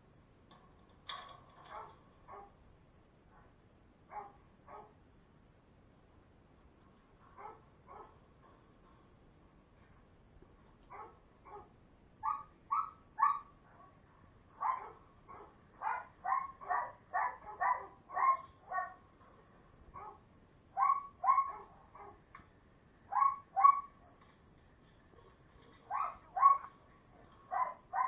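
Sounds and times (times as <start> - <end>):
dog barking: 1.7 - 2.6, 3.4 - 5.0, 7.4 - 8.2, 10.9 - 14.0, 14.6 - 19.0, 20.0 - 20.2, 20.8 - 22.2, 23.1 - 24.0, 25.9 - 28.0.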